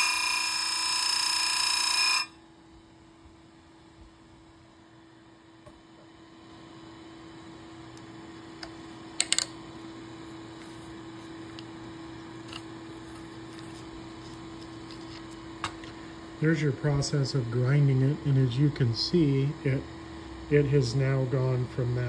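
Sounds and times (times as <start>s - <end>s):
chain grinder humming: 0.0s - 2.4s.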